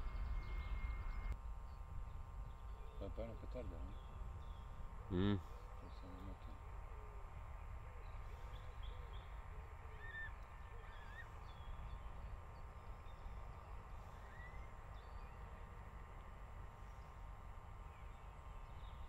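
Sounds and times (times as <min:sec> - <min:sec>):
bird chirps: 0:00.0 - 0:03.1, 0:08.0 - 0:15.8
faint low rumble: 0:00.0 - 0:05.1.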